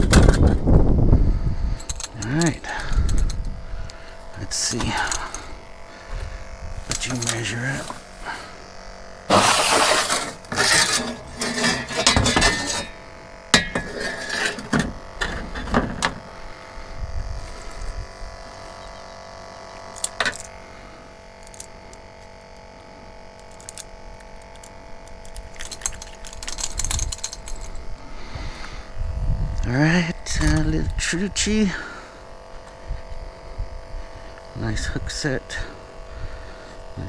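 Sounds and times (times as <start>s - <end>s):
steady hum: 0.0s - 37.0s
small clinks and clicks: 1.8s - 4.1s, 4.7s - 5.5s, 6.8s - 8.0s, 19.7s - 20.6s, 21.4s - 22.7s, 23.3s - 27.8s, 29.6s - 31.1s.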